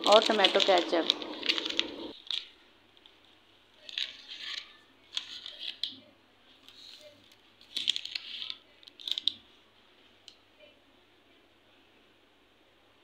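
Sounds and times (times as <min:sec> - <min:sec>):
plastic packaging rustling: 0:00.0 - 0:06.0, 0:06.6 - 0:09.5.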